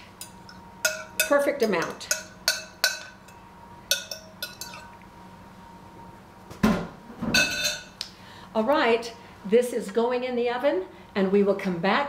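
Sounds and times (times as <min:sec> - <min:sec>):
glass kitchenware clinking: 0:00.2 - 0:05.0, 0:07.3 - 0:08.0.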